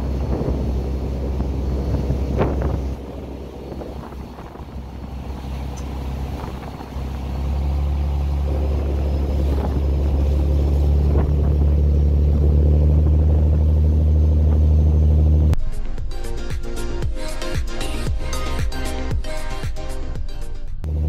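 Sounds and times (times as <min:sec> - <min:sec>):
boat engine droning: 0:00.0 - 0:19.6.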